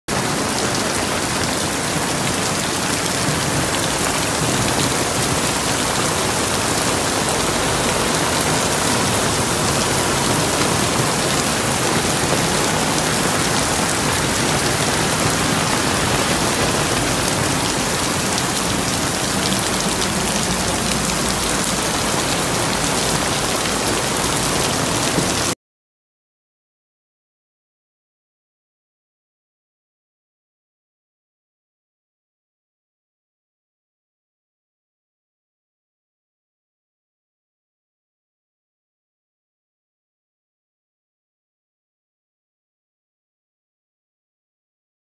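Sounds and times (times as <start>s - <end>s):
heavy rain on pavement: 0.1s - 25.6s.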